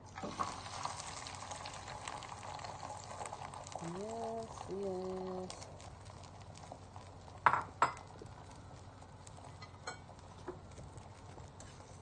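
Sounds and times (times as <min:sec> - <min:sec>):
omelette sizzling in pan: 0:00.0 - 0:12.0
cookware knocking on stove: 0:07.5 - 0:08.0.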